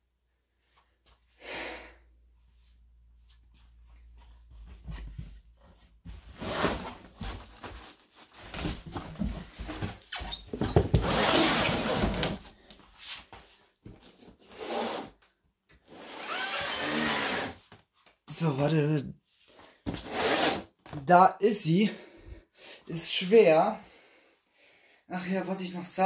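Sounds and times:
cardboard cartons scraping: 6.1 - 13.3, 19.9 - 20.8.

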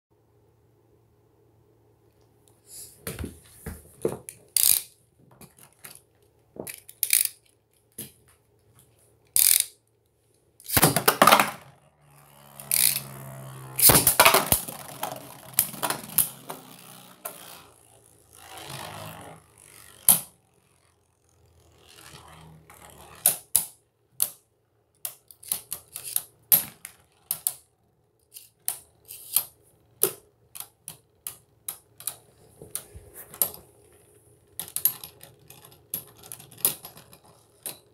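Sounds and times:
spinning tops clattering: 10.6 - 20.8
loud rasping of tops grinding: 12.0 - 23.2.

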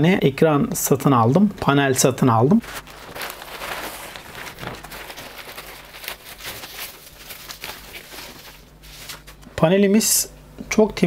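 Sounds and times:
packaging crackling and rustling: 2.6 - 9.4.

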